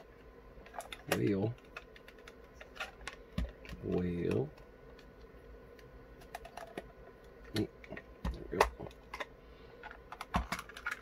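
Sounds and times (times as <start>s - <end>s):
plastic case clicking and knocking: 7.9s - 11.0s.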